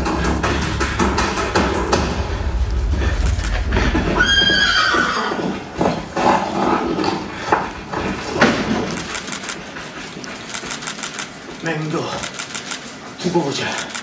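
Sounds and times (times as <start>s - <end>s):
low rumble: 0.0s - 9.2s
horse whinny: 4.2s - 5.6s.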